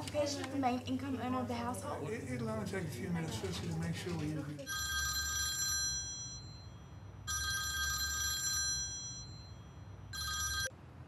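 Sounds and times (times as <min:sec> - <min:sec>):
mobile phone ringtone: 0:04.6 - 0:10.8.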